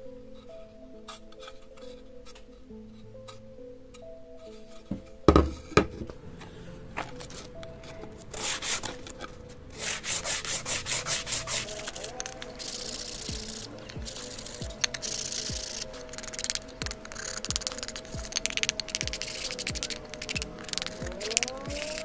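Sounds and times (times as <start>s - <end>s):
sandpaper rasping on wood: 9.8s - 22.0s.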